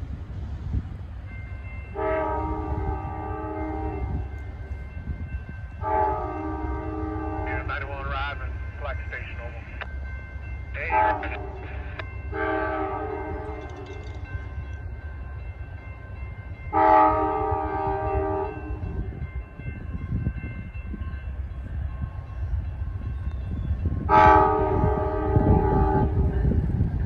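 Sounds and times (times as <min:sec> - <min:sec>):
low train rumble: 0:00.0 - 0:27.0
locomotive air horn blasts: 0:01.9 - 0:04.3, 0:05.8 - 0:07.7, 0:10.9 - 0:11.7, 0:12.3 - 0:13.8, 0:16.7 - 0:19.0, 0:24.1 - 0:26.3.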